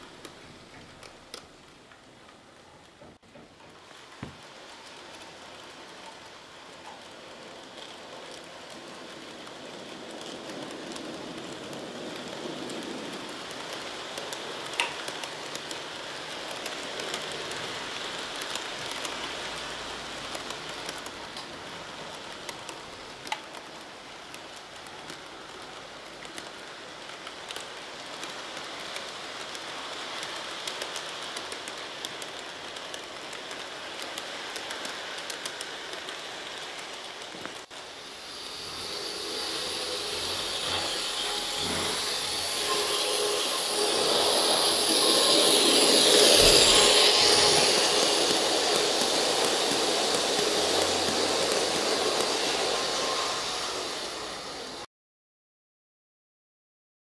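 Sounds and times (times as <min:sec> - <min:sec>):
model train wheels on rails: 0:00.0 - 0:54.9
clicks at rail joints: 0:00.1 - 0:37.7.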